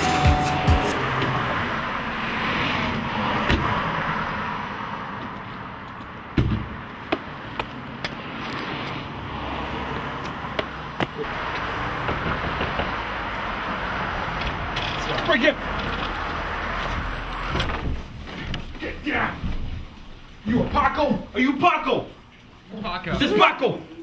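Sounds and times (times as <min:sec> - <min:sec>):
car engine and tyre noise: 0:00.0 - 0:20.4
heavy thump: 0:06.4 - 0:07.2.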